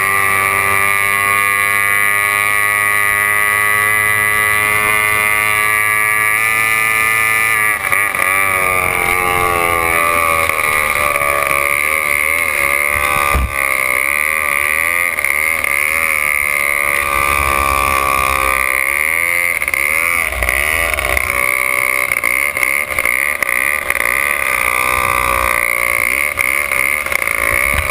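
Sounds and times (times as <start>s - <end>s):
racing boat engine revving: 0.0s - 27.9s.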